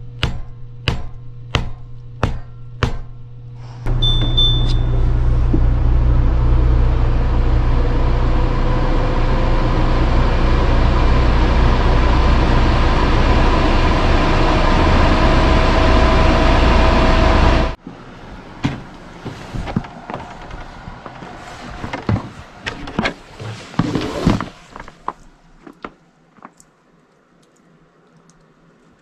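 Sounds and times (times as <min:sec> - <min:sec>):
air purifier beep: 0:03.9 - 0:05.1.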